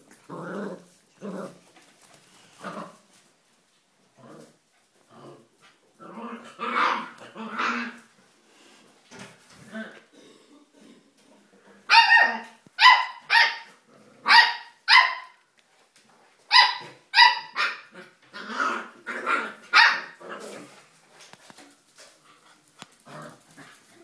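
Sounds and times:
dog barking: 11.9 - 15.4, 16.5 - 17.9, 19.7 - 20.2.

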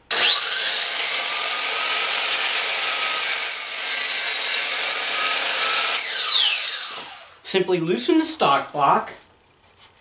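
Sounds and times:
miter saw whine: 0.1 - 7.4.

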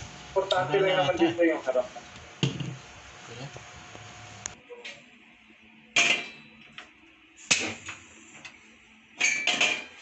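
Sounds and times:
frying pan clanking on burner grate: 2.4 - 2.8.

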